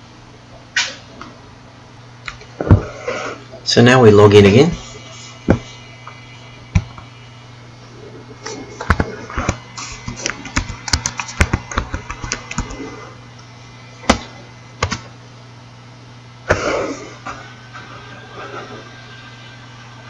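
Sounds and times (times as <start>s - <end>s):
computer keyboard typing: 10.4s - 12.8s.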